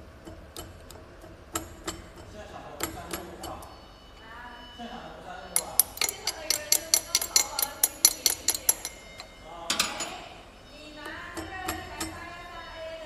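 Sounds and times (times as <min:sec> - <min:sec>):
rapid sharp metallic clicks: 0:05.6 - 0:09.3.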